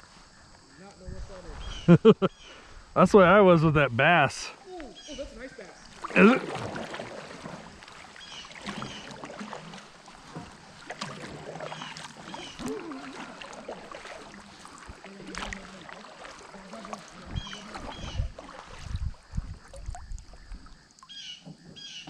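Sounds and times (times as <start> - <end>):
paddle splashing water: 4.4 - 22.0
paddle knocking on hull: 5.9 - 20.7.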